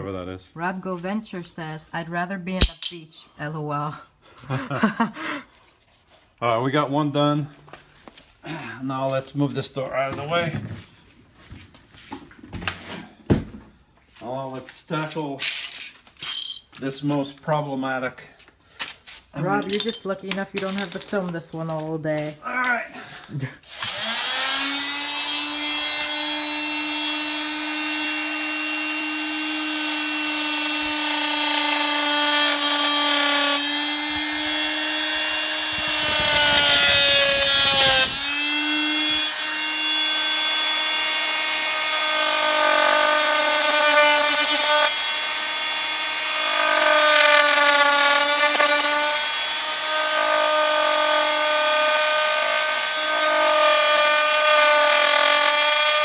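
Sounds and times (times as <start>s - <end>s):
multi-tool cutting wood: 23.2s - 56.0s.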